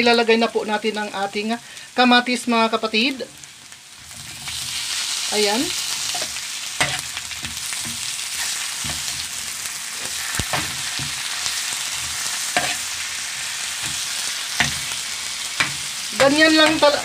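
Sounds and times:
vegetables sizzling in hot oil: 0.0s - 17.0s
metal spatula scraping a pan: 5.8s - 17.0s.

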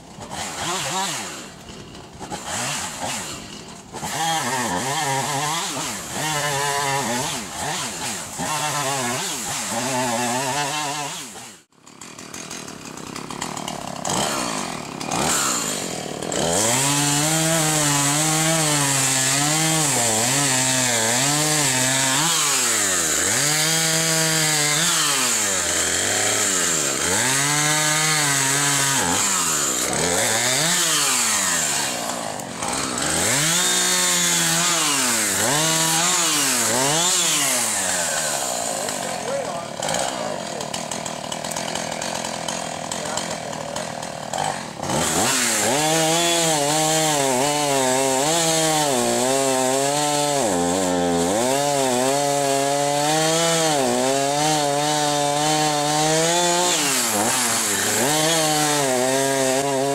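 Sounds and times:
chainsaw revving while cutting: 0.0s - 59.9s.

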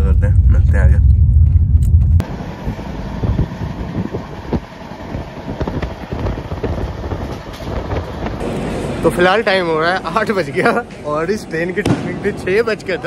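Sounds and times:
train rumble and hiss: 2.2s - 13.0s.

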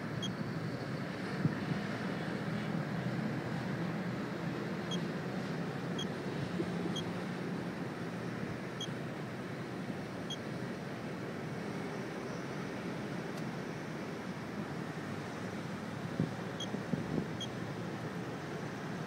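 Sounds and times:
dosimeter beeps: 16.6s - 16.8s, 17.4s - 17.6s.

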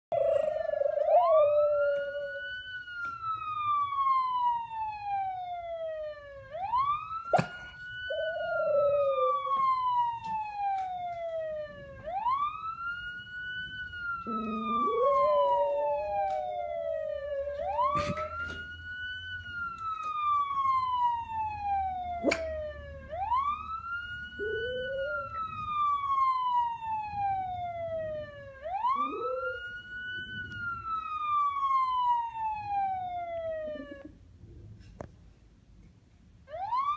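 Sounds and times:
dog howling: 0.1s - 2.4s, 8.1s - 9.6s, 14.3s - 18.2s
emergency vehicle wail siren: 0.1s - 34.4s, 36.4s - 36.9s.

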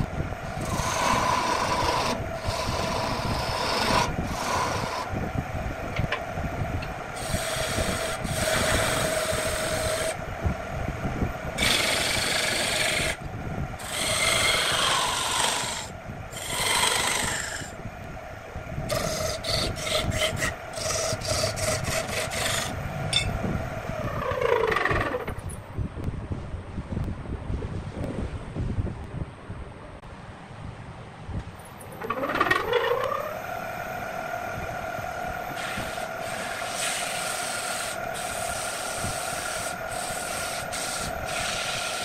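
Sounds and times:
chisel scraping spinning wood: 0.0s - 5.1s, 7.2s - 10.2s, 11.6s - 17.7s, 18.9s - 23.4s, 24.0s - 25.4s, 35.4s - 42.0s
wood lathe humming: 0.0s - 5.2s, 6.9s - 10.2s, 11.5s - 17.8s, 18.8s - 22.8s, 32.0s - 42.0s.

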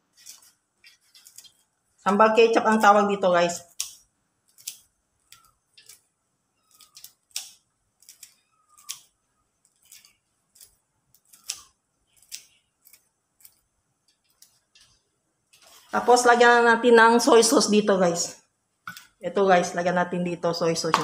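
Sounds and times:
scissors snipping: 3.6s - 6.0s, 6.7s - 13.6s.

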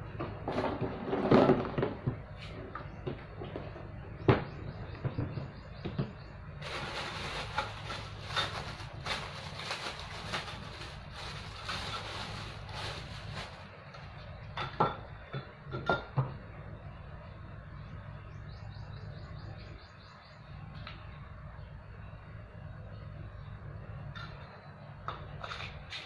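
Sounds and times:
plastic bag crinkling: 6.6s - 13.7s.

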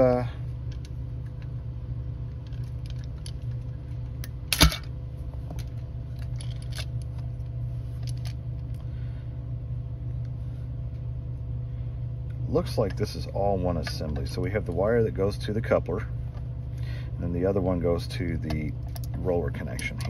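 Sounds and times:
low hum: 0.0s - 20.0s
clicks and rattles of plastic parts: 2.3s - 7.3s, 8.0s - 8.8s, 18.4s - 20.0s.

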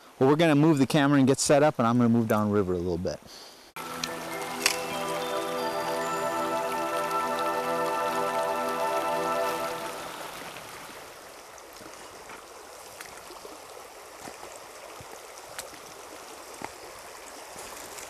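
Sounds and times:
river water rushing over rocks: 3.8s - 11.2s.

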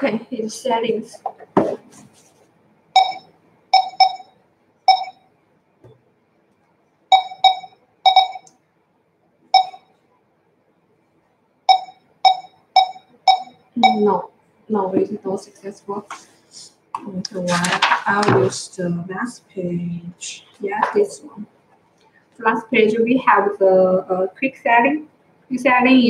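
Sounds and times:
barcode scanner beeps: 3.0s - 5.2s, 7.1s - 8.5s, 9.6s - 9.9s, 11.7s - 14.2s.

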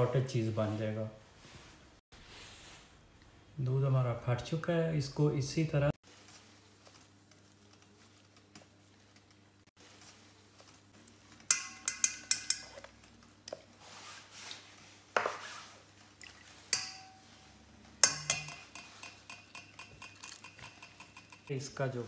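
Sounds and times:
spatula scraping: 6.0s - 21.6s
metal strainer clinking on pot: 11.3s - 13.2s, 16.6s - 21.6s.

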